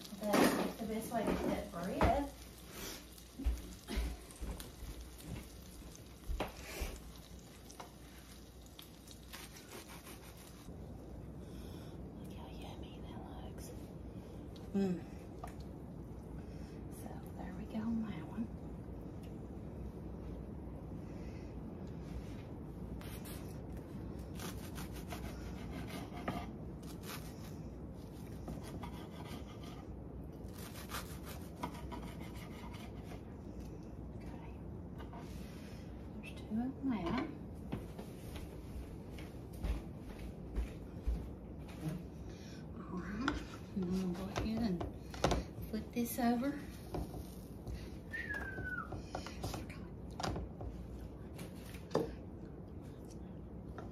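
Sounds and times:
faint sizzle in frying pan: 0.0 - 11.2
serrated knife cutting bread: 9.2 - 10.7.

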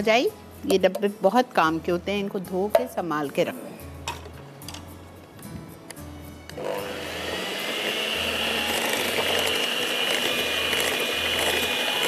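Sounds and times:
electric mixer whirring: 6.6 - 12.0.

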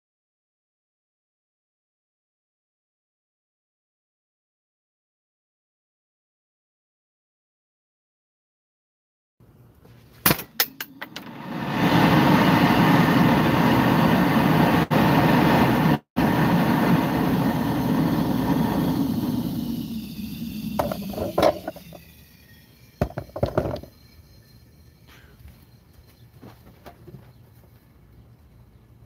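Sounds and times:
gas jet rushing hiss: 10.8 - 25.4.

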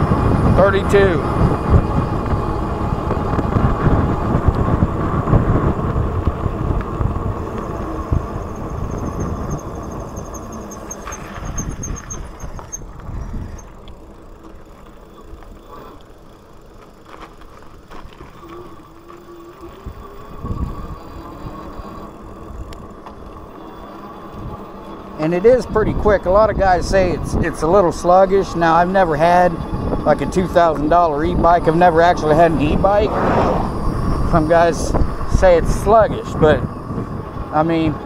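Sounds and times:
wind rushing over microphone: 0.0 - 13.8, 19.8 - 21.6, 25.4 - 38.0
tyre and road noise: 0.0 - 38.0.

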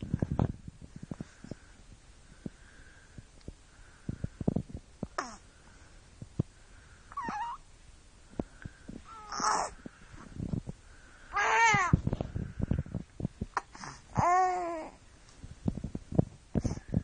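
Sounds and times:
baby cooing squeals: 7.1 - 7.6, 9.1 - 9.8.

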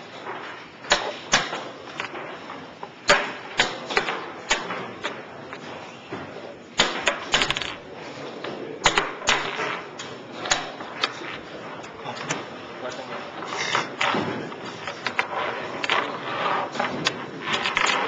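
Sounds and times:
chess pieces clicking on board: 7.1 - 7.8, 16.8 - 18.0.

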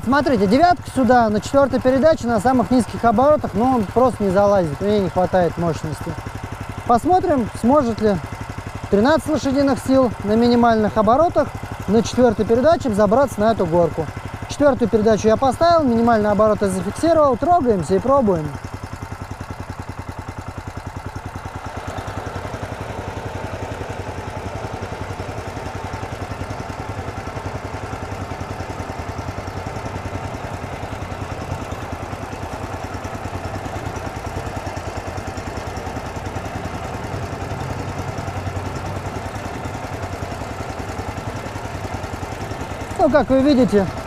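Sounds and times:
single-cylinder engine running: 0.0 - 44.0.

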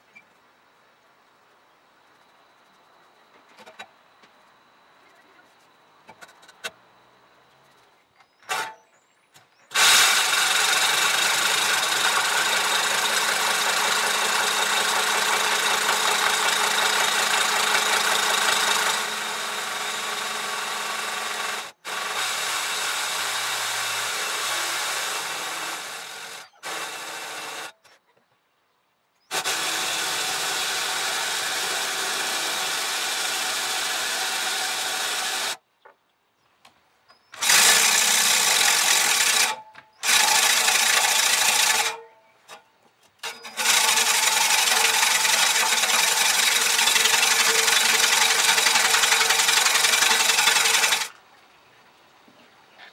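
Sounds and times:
power drill running: 9.7 - 27.8, 29.3 - 35.6, 37.4 - 42.0, 43.2 - 51.2.

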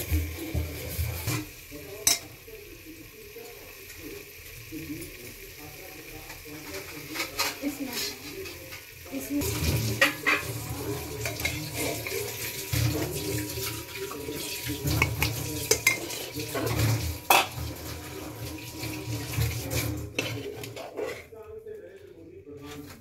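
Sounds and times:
metal ladle scraping a pot: 9.5 - 13.8, 14.4 - 17.6, 19.0 - 21.4.

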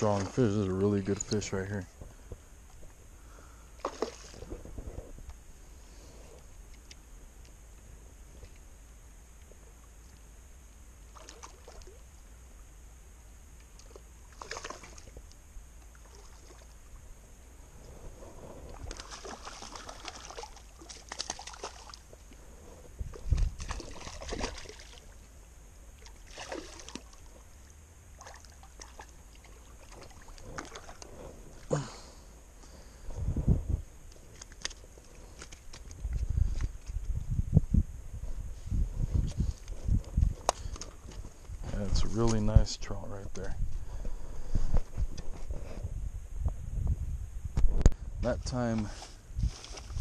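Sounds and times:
fish splashing and thrashing: 3.8 - 5.1, 11.0 - 12.3, 13.6 - 17.1, 18.5 - 33.2, 34.1 - 37.0.

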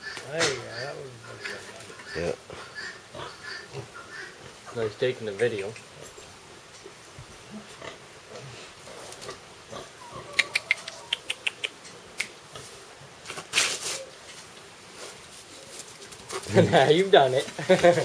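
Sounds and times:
calf snuffling in straw: 13.4 - 14.1.

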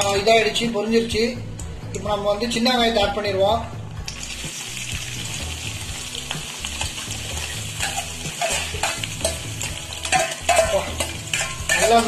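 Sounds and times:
onions sizzling in hot oil: 4.1 - 12.0
steel ladle scraping and clinking: 7.4 - 12.0.

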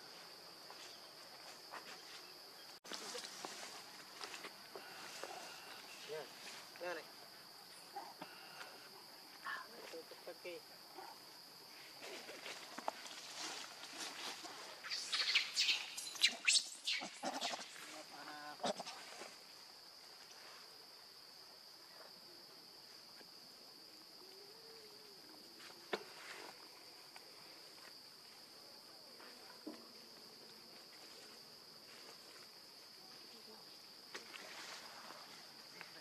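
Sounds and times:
high insect drone: 0.0 - 36.0
baby monkey squealing: 14.9 - 17.7.

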